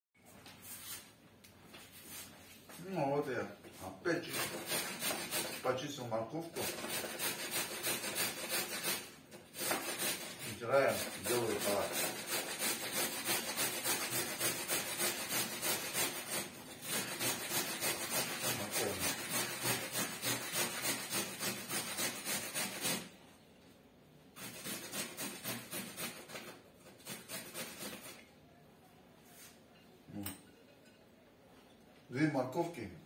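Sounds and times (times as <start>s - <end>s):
carrot grating on metal grater: 4.2s - 5.9s, 6.6s - 23.1s, 24.4s - 28.2s.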